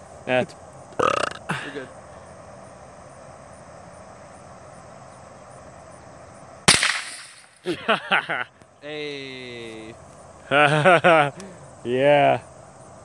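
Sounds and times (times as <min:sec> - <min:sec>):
faint outdoor hiss: 0:00.0 - 0:13.0
shotgun blast: 0:06.7 - 0:07.5.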